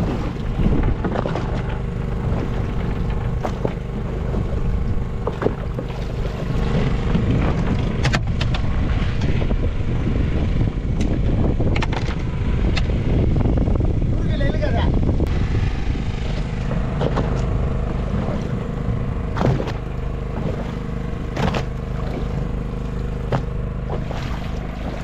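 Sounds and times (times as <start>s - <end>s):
boat engine rumbling: 0.0s - 25.0s
sharp knocks and clicks: 7.1s - 9.4s.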